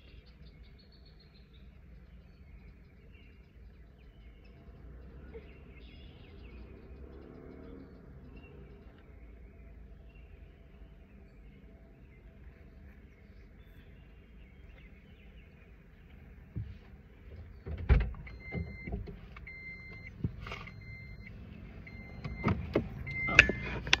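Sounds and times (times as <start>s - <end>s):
car door opening: 16.6s - 24.0s
car warning chime beeping: 18.0s - 24.0s.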